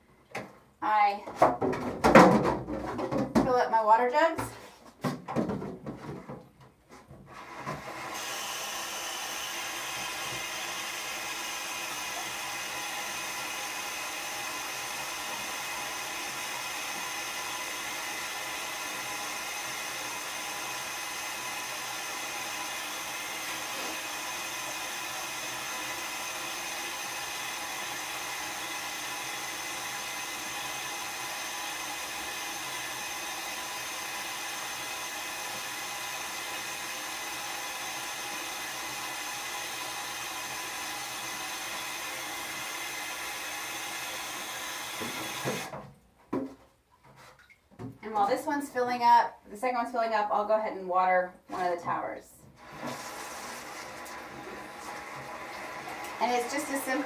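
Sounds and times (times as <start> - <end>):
tap water filling plastic jugs: 7.4 - 48.0, 52.5 - 57.0.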